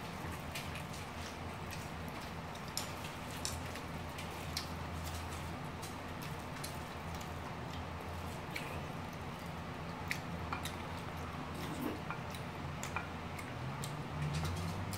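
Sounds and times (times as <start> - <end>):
chewing smacks: 0.1 - 14.9
chopsticks clicking on plates: 10.1 - 10.8, 12.0 - 14.9.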